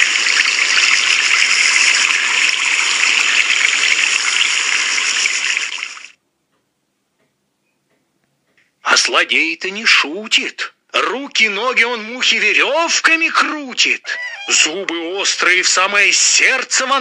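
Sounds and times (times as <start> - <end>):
water trickling: 0.0 - 6.2.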